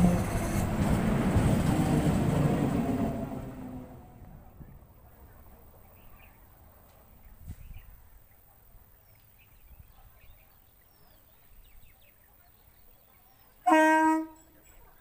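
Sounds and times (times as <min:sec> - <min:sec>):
faint outdoor ambience: 0:00.0 - 0:15.0.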